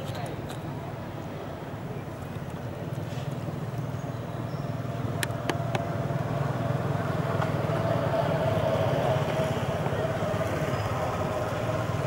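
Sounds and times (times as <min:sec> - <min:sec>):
engine rumbling steadily: 0:00.0 - 0:12.0.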